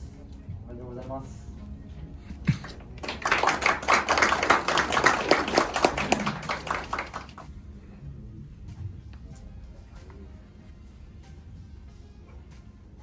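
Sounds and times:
small audience applauding: 2.4s - 7.5s.

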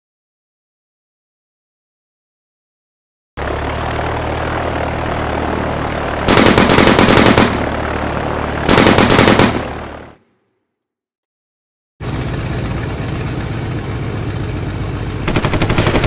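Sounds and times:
biplane engine running: 3.4s - 10.2s, 12.0s - 16.0s
machine-gun fire: 6.3s - 7.8s, 8.7s - 10.0s, 15.2s - 16.0s.

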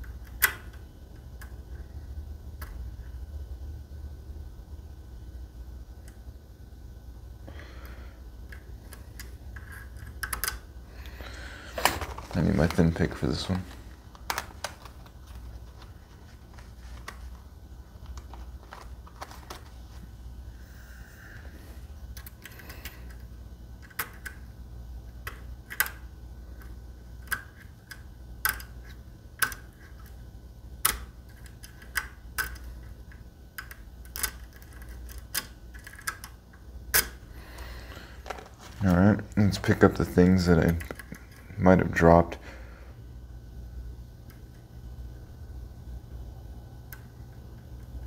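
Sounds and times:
lock pick clicking in lock: 33.6s - 37.2s.

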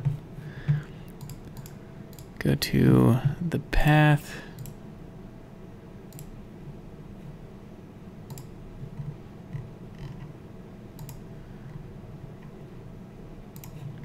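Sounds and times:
computer mouse clicking: 0.0s - 2.3s, 4.6s - 4.8s, 6.1s - 6.3s, 8.3s - 10.3s, 11.0s - 11.8s, 13.5s - 14.0s.

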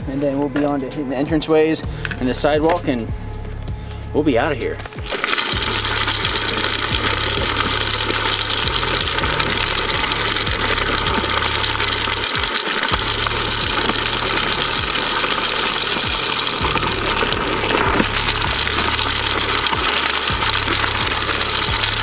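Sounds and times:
low hum: 1.9s - 22.0s
rock salt rattling: 4.9s - 22.0s.

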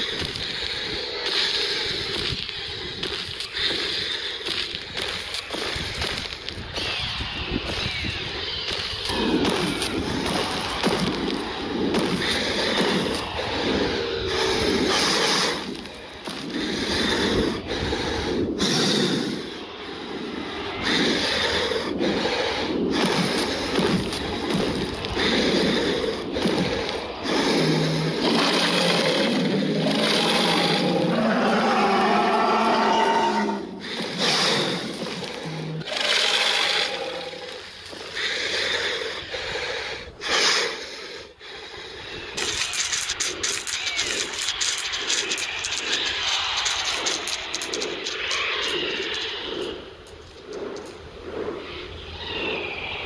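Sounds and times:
low breathy dinosaur growls: 8.2s - 43.2s.

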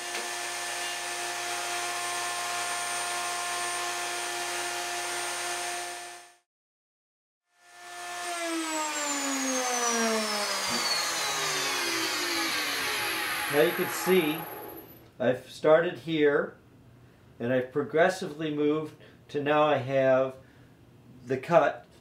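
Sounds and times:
router whining: 7.6s - 15.0s.

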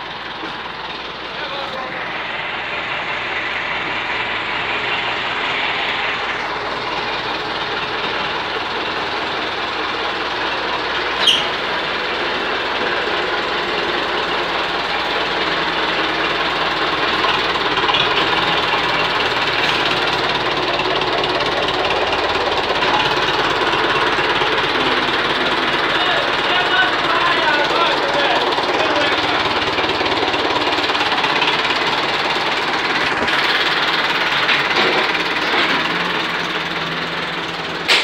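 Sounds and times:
tractor diesel engine clattering: 0.0s - 38.0s
high squeak: 11.2s - 11.6s.

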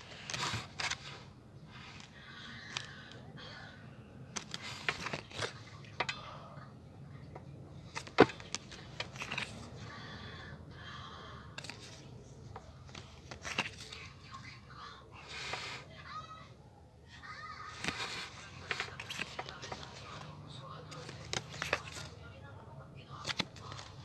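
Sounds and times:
cards and packaging rustling: 0.0s - 3.2s, 4.3s - 6.1s, 7.8s - 10.0s, 11.5s - 14.6s, 17.4s - 22.3s, 23.0s - 24.0s.

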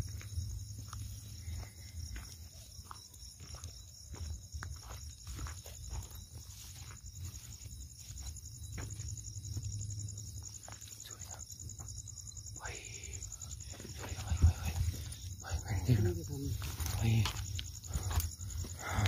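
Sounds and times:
footsteps through dry grass: 0.0s - 9.7s
crickets chirping: 0.0s - 19.0s.

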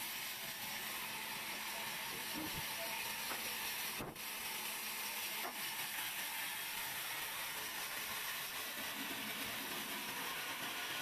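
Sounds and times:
band sawmill running: 0.0s - 11.0s.

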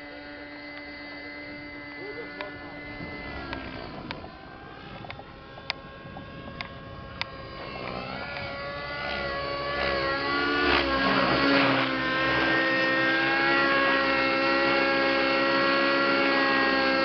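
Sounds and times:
model helicopter whine: 0.0s - 17.0s
sharp clicks: 3.4s - 9.2s.

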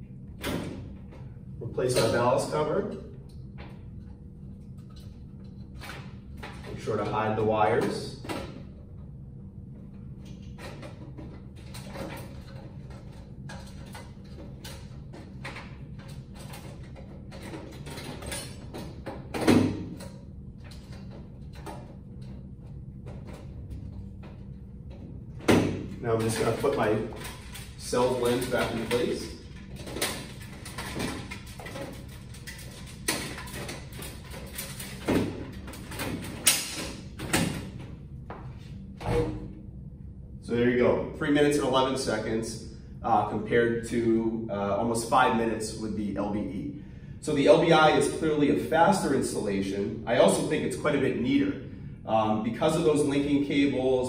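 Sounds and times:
low room hum: 0.0s - 54.0s.

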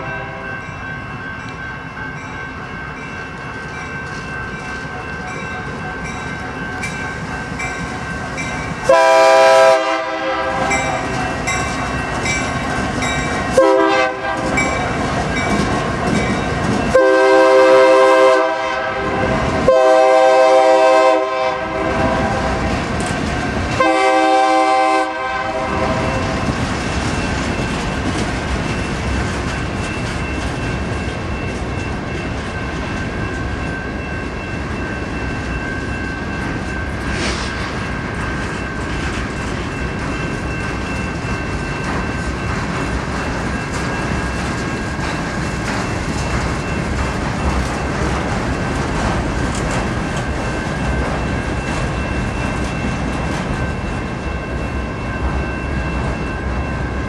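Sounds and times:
train cars rumbling and clacking: 0.0s - 57.0s
locomotive air horn blasts: 8.9s - 11.0s, 13.6s - 14.6s, 16.9s - 22.6s, 23.8s - 26.4s.

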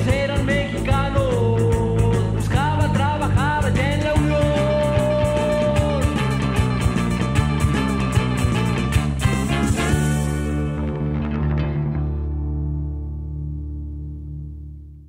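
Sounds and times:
steady drum beat: 0.0s - 10.8s
bent sliding guitar lead: 0.0s - 14.8s
bass: 0.0s - 15.0s.

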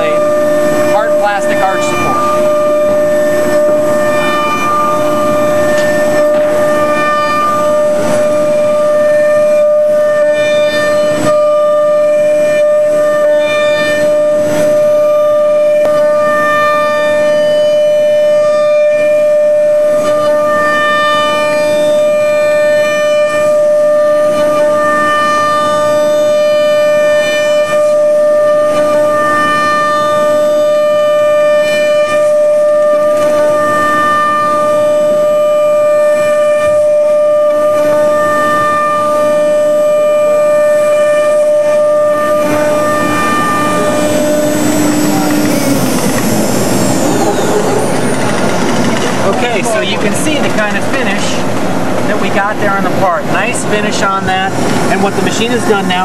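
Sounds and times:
router spindle whining: 0.0s - 56.0s.

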